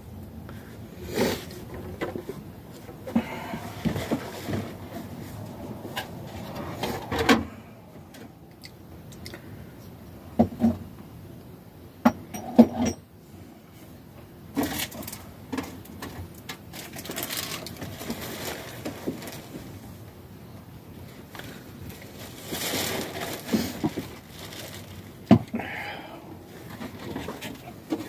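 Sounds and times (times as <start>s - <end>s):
plastic bag rustling: 14.6s - 20.0s, 21.0s - 25.4s.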